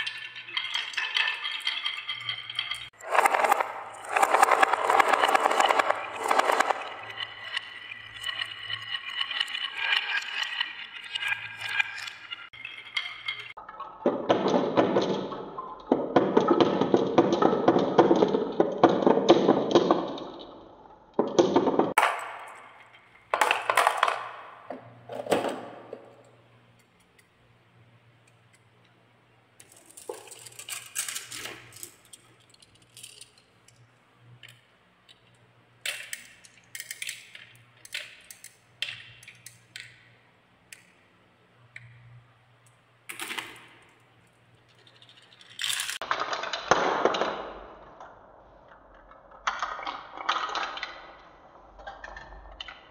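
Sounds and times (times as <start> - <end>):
marbles clacking against wood: 0.0 - 20.6, 41.6 - 47.6
marbles rolling on wooden track: 0.0 - 26.4, 29.6 - 40.9, 43.1 - 47.8, 48.4 - 52.9.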